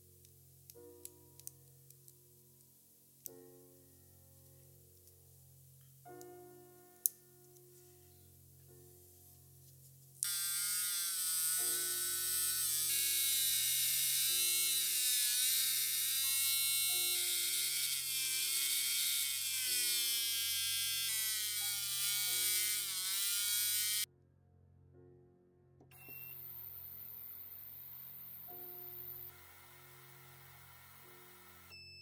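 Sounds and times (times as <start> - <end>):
soft background music: 0.0 - 32.0
rotary tool whine: 26.0 - 31.8.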